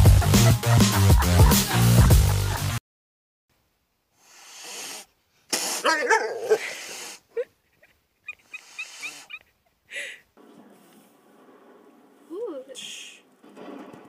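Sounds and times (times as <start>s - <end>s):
dance music: 0.0s - 2.8s.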